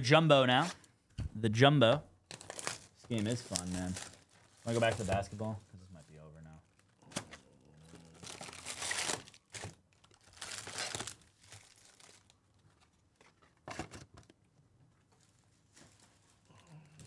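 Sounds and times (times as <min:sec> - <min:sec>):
foil packs crinkling and tearing: 0:02.3 - 0:12.4.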